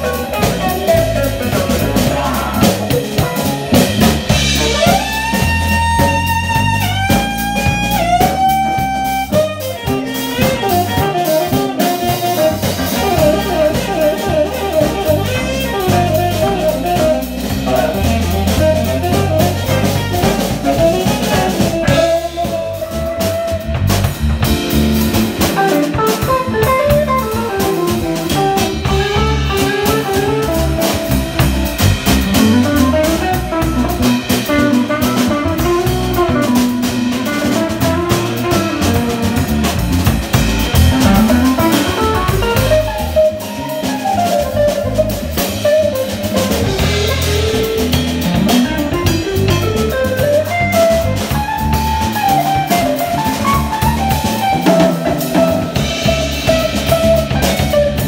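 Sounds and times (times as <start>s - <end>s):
drum kit: 0.0s - 58.0s
electric bass: 0.0s - 58.0s
electric guitar: 0.0s - 58.0s
saxophone: 0.0s - 58.0s.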